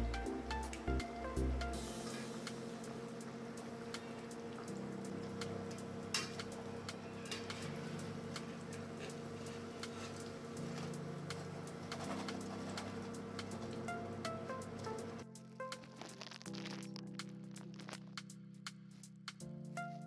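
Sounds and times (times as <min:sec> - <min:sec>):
oil crackling while deep-frying: 0:15.6 - 0:18.2.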